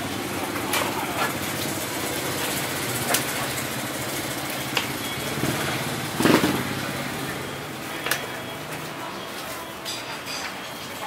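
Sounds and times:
small engine idling: 0.0s - 7.7s.

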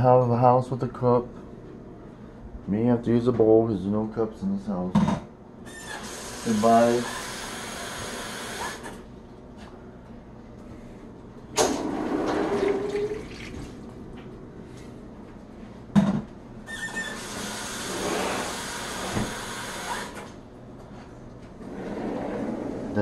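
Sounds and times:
water running into container: 12.1s - 14.0s.

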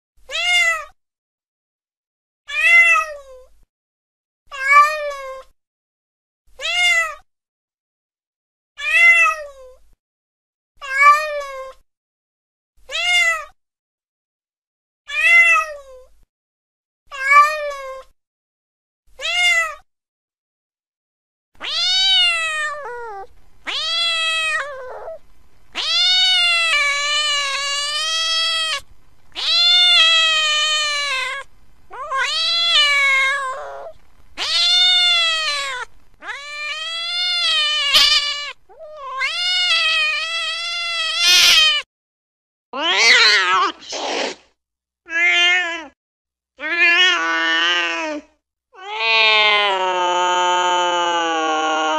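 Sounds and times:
cat meowing: 0.3s - 0.9s, 6.6s - 7.2s, 12.9s - 13.5s, 19.2s - 19.8s, 21.6s - 41.9s, 42.8s - 44.1s, 45.1s - 46.0s, 46.6s - 48.2s, 48.8s - 51.9s.

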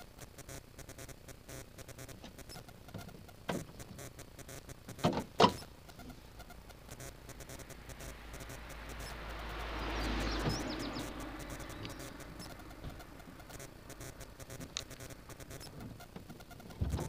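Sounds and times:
approaching car road noise: 6.9s - 15.6s.

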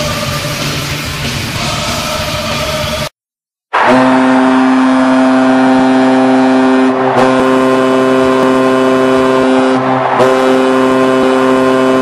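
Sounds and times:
stadium goal horn blasting: 3.8s - 12.0s.

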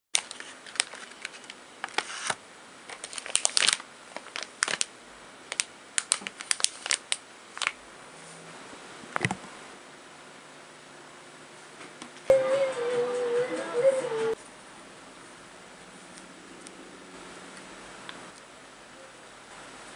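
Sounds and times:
plastic packaging crinkling: 0.2s - 4.9s, 5.5s - 7.8s.

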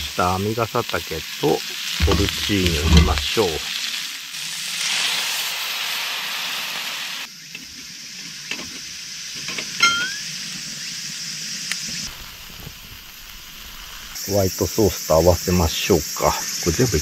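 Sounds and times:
mushrooms sizzling in a pan: 0.0s - 17.0s
metal tongs stirring: 2.0s - 3.3s.

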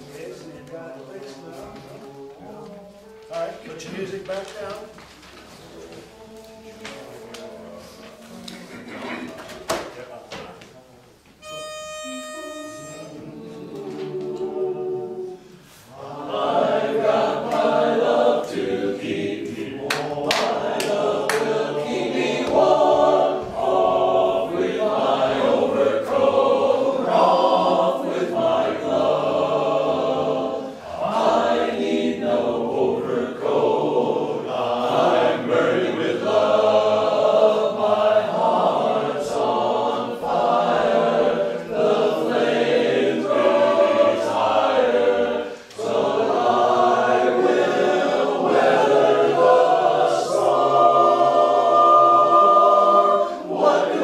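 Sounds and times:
pitch note: 11.4s - 13.4s
choir singing in harmony: 12.6s - 54.0s.

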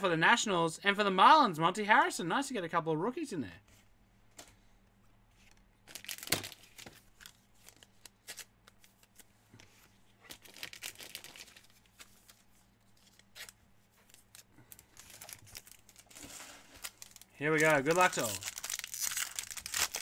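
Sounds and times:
foil wrapper tearing and crinkling: 5.9s - 9.2s, 10.3s - 20.0s.

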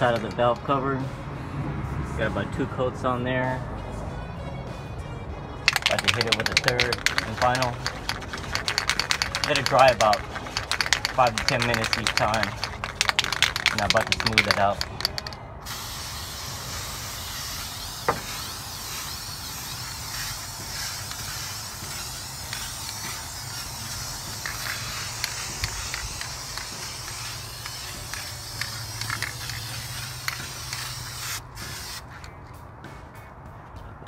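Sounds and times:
aerosol spray can hissing: 5.7s - 32.3s.

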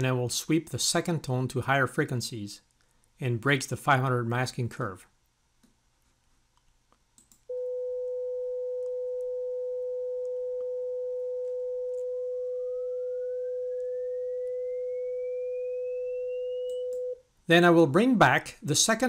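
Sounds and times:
rising sine tone: 7.5s - 17.2s
steady sine test tone: 7.5s - 17.3s.

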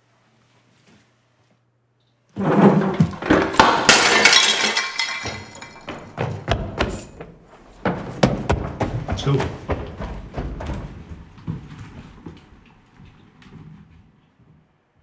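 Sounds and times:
clattering debris: 2.4s - 6.3s
glass breaking crash: 2.8s - 6.0s.

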